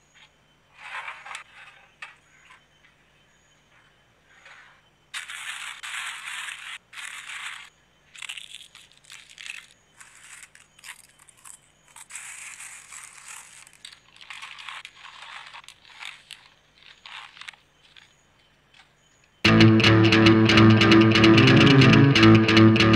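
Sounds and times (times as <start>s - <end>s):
crisp chips crackling and crunching: 5.2s - 18.1s.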